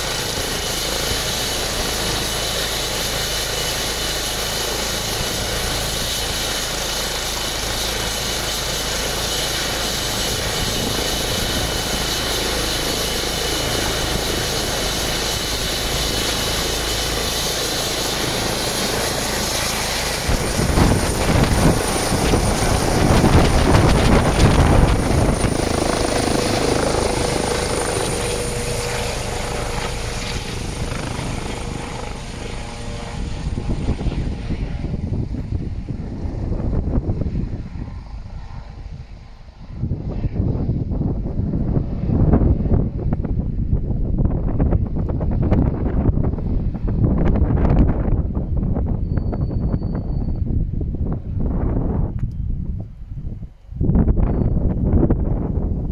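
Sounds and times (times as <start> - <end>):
helicopter rotor noise: 0.0 - 55.9
turbine engine whine: 0.0 - 55.9
heavy low rumble: 10.2 - 37.8.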